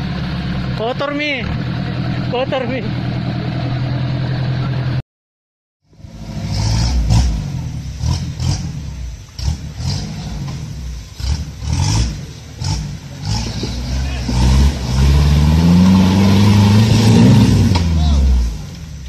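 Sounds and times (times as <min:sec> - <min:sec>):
engine idling: 0:00.0 - 0:05.0
engine revving under load: 0:05.9 - 0:18.9.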